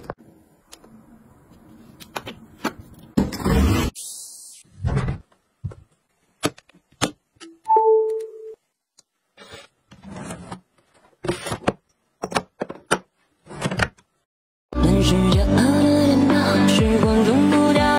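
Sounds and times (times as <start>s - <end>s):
drawer sliding open: 9.4s - 10.6s, 13.4s - 14.0s.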